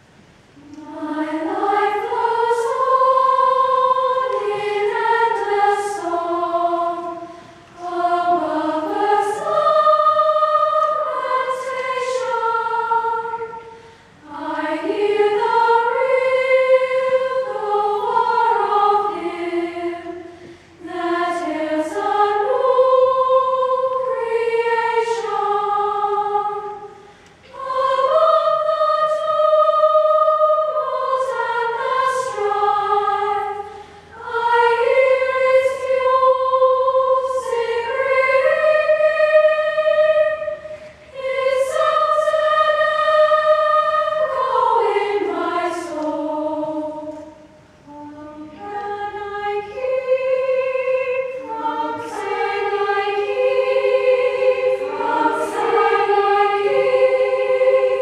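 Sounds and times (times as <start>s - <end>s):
children's chorus singing: 0.0s - 58.0s
short breaths: 13.8s - 14.2s, 20.3s - 20.8s, 27.0s - 27.4s.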